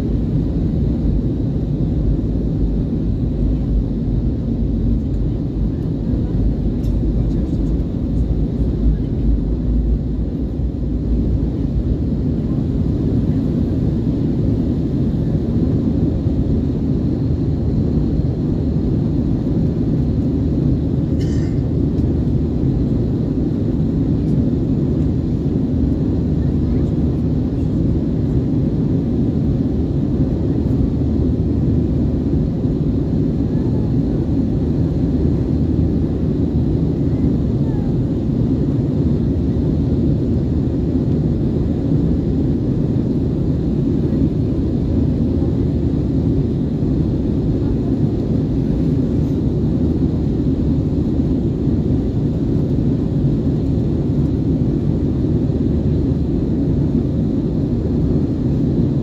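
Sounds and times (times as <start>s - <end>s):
jet engine drone: 0.0s - 59.0s.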